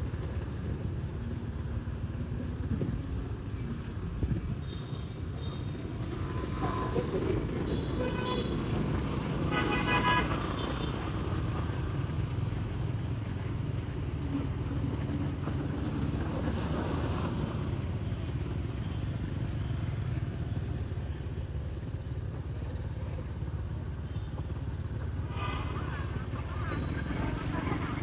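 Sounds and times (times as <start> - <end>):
motorbikes and cars passing: 0.0 - 28.0.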